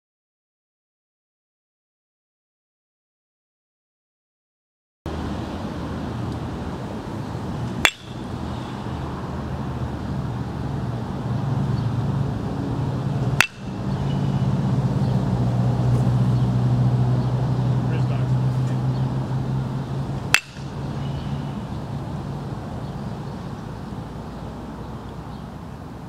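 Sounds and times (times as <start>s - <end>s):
baseball bat cracking ball: 7.7s - 9.2s, 13.1s - 14.4s, 20.0s - 21.2s.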